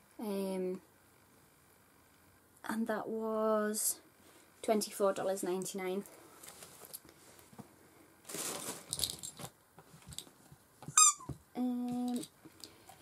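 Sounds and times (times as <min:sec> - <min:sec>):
items rustling: 0:06.0 - 0:13.0.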